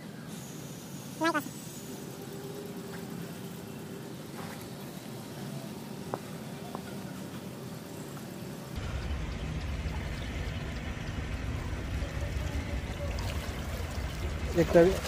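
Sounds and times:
steady low rumble: 8.8s - 15.0s
water sloshing and dripping: 8.8s - 15.0s.

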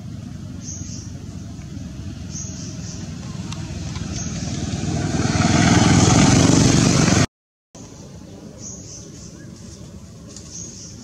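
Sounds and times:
motor vehicle engine and road noise: 0.0s - 11.0s.

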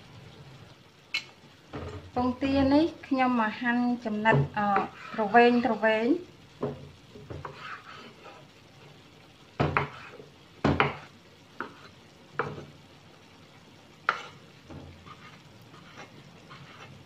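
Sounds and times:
knife knocking on cutting board: 9.6s - 10.0s, 10.6s - 11.0s.

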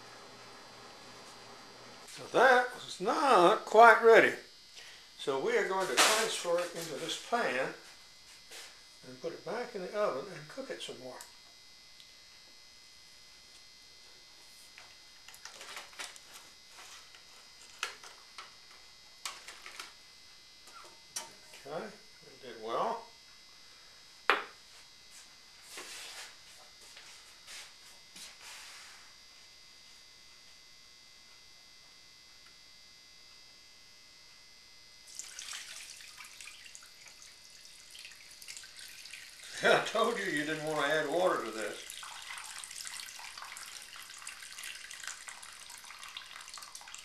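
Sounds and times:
faint steady hum: 0.0s - 47.0s
juices pouring and splashing: 35.1s - 47.0s.

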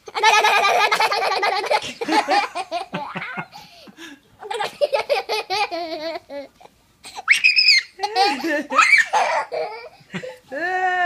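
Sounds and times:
toddler giggling: 0.1s - 3.6s, 4.4s - 7.3s, 8.0s - 10.3s.

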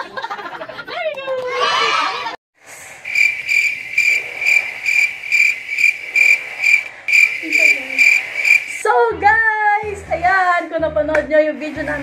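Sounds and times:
cricket chirping: 3.0s - 8.8s.

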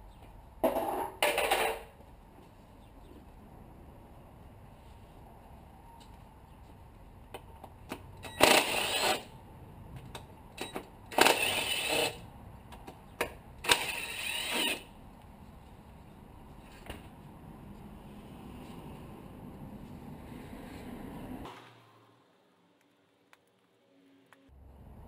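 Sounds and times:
cordless power driver whining: 13.6s - 14.9s.

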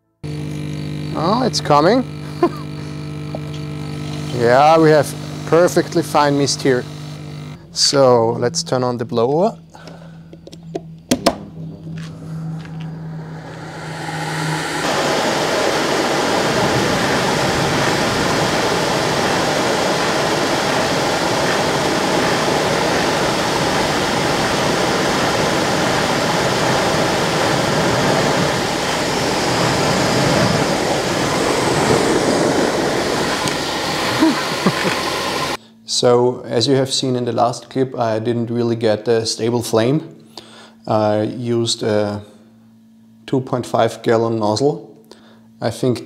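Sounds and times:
blower fan hum: 0.0s - 46.0s
burner flame roar: 0.3s - 7.6s, 11.3s - 35.6s.

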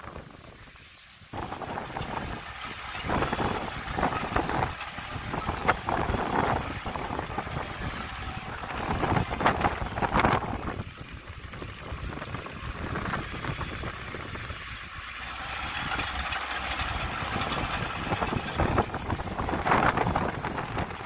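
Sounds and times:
bulldozer diesel engine under load: 1.4s - 21.0s
machine clattering: 15.2s - 20.9s.

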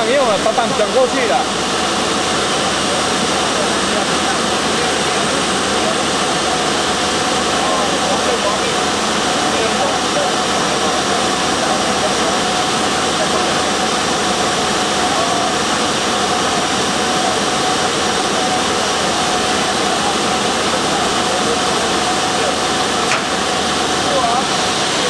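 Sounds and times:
panel saw running: 16.8s - 25.0s.

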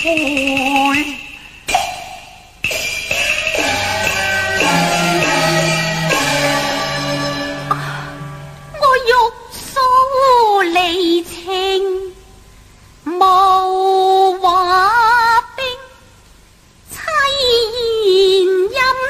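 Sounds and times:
opera singing with vibrato: 0.0s - 2.2s, 3.6s - 12.2s.

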